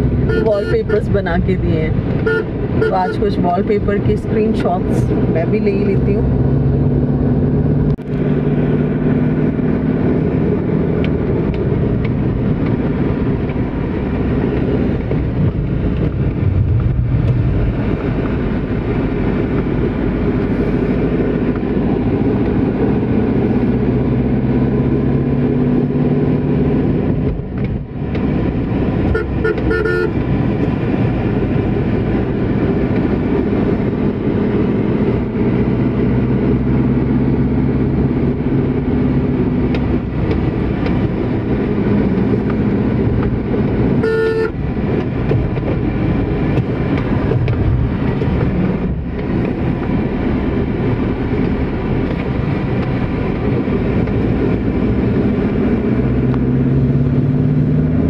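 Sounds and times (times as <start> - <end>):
car engine and road noise: 0.0 - 58.0
vehicle horn toots: 0.2 - 1.1, 2.2 - 3.4, 29.1 - 30.2, 44.0 - 44.6.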